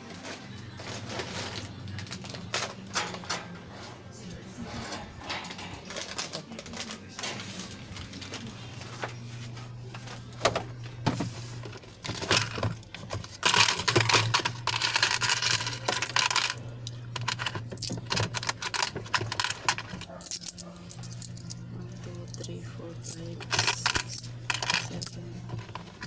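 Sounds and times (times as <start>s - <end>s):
coins clinking on a counter: 12.1s - 26.0s.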